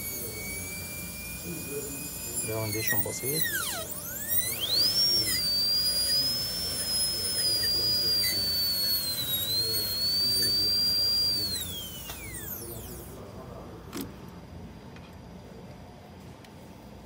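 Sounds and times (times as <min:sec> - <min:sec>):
dental drill whining: 0:00.0 - 0:13.2.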